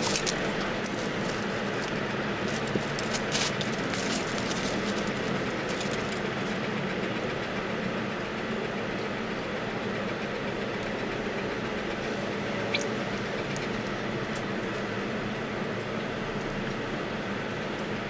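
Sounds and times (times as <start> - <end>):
plastic bag and trays crinkling: 0.0 - 6.2
steady low hum: 0.0 - 18.0.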